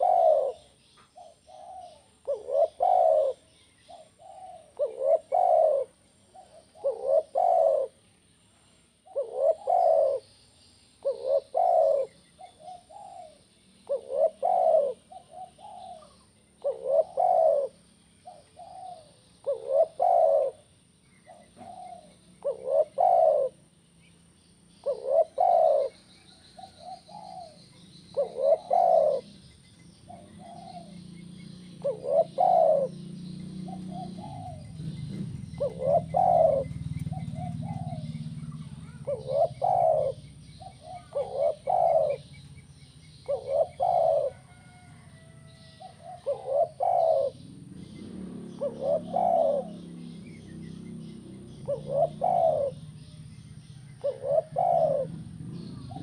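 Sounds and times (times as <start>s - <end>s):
dove cooing: 0.0s - 8.1s, 9.0s - 10.4s, 11.0s - 23.7s, 24.6s - 56.0s.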